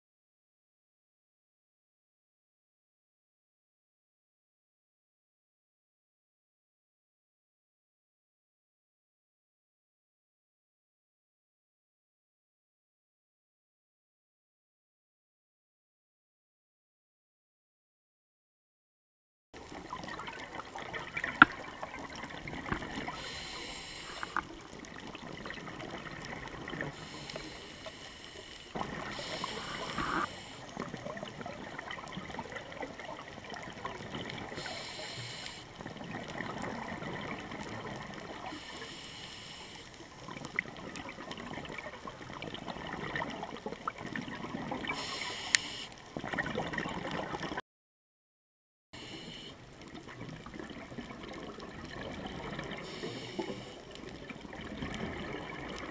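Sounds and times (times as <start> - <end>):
gurgling exhaled bubbles: 19.6 - 27.9, 28.7 - 38.7, 40.2 - 47.6, 49.7 - 55.9
faint crackling clicks: 19.6 - 47.6, 49.0 - 55.9
regulator hissing inhale: 23.0 - 24.6, 26.9 - 30.8, 34.5 - 35.8, 38.5 - 40.2, 44.9 - 46.0, 49.0 - 49.6, 52.8 - 53.9.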